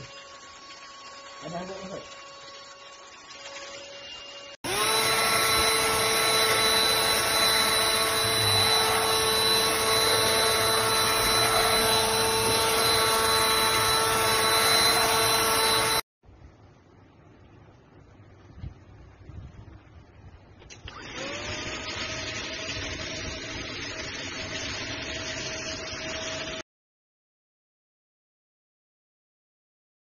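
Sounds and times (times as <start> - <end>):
vacuum cleaner motor whine: 0.0 - 16.0, 20.8 - 26.6.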